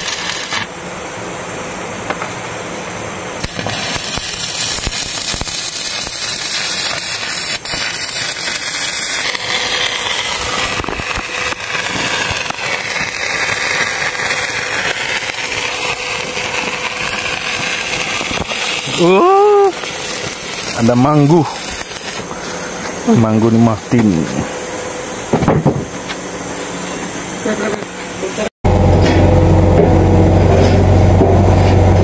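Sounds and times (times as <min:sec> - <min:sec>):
welding arc crackling: 0:00.0 - 0:00.8, 0:03.3 - 0:24.6.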